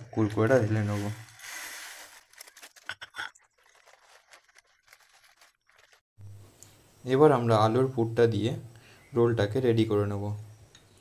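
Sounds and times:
plastic packet crackling: 0.2s - 6.0s.

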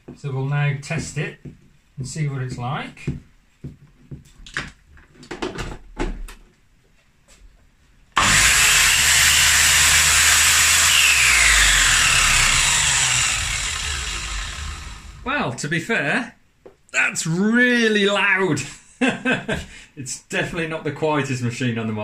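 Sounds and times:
mitre saw motor running: 8.2s - 15.3s.

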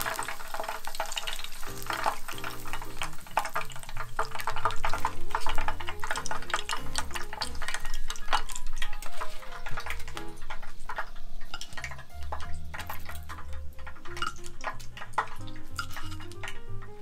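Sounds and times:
frying oil crackling and popping: 0.0s - 17.0s
background music with bass line: 11.7s - 17.0s.

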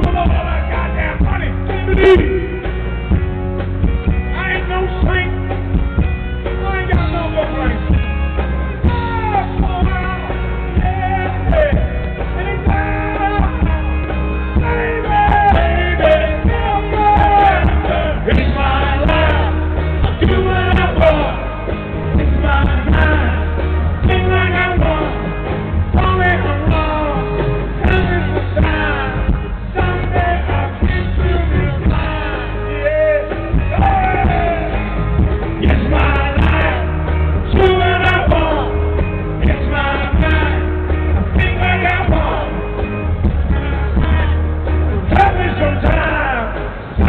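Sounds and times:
live rock band playing: 0.0s - 47.0s
steady bass: 0.0s - 47.0s.

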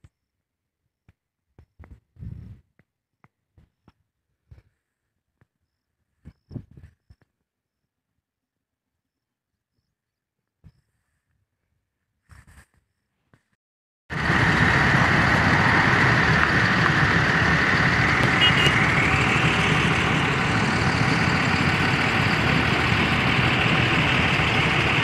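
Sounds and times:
road traffic noise: 14.1s - 25.0s.

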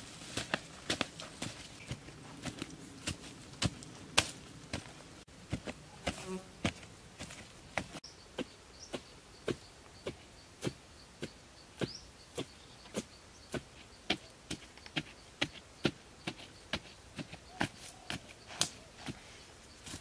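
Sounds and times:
digging tool striking soil: 1.9s - 4.9s.

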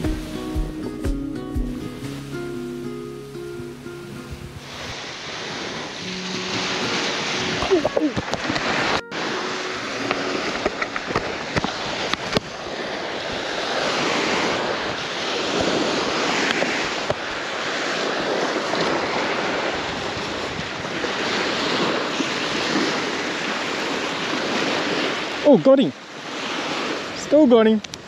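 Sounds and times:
small waves washing onto beach: 0.0s - 28.0s.

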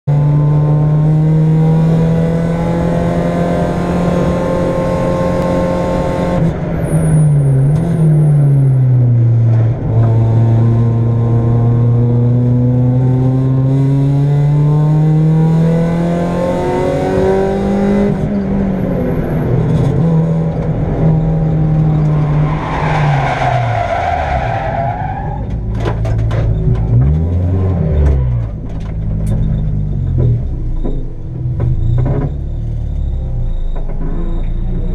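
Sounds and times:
race car engine pulling hard: 0.4s - 25.4s
knocks and thumps: 25.4s - 27.1s.

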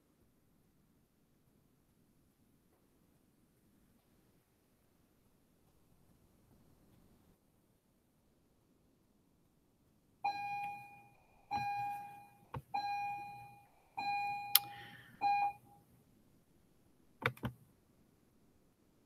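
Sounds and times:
sharp clicks: 17.2s - 17.6s.

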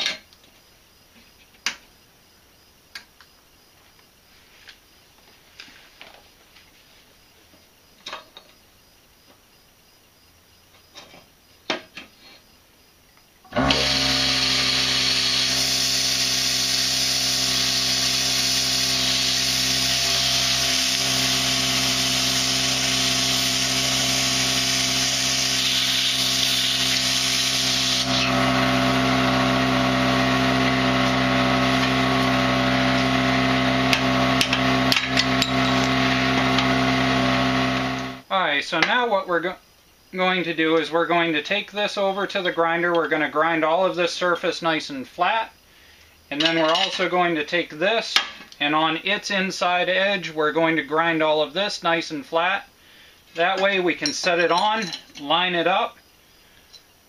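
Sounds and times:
plasma cutter hissing: 15.4s - 28.3s.

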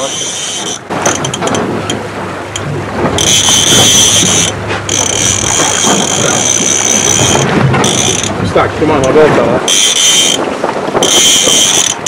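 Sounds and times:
fishing reel drag whining: 0.0s - 1.4s, 3.2s - 8.4s, 9.6s - 12.0s.

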